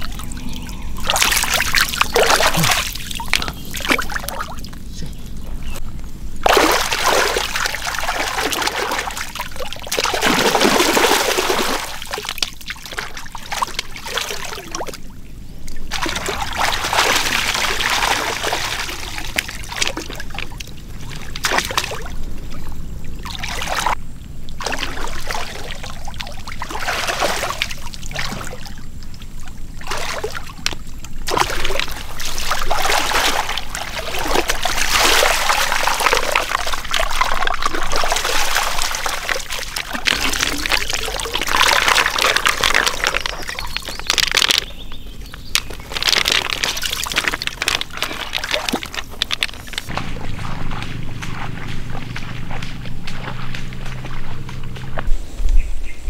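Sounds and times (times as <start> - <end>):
water splashing and trickling: 0.0 - 5.8, 6.4 - 55.4.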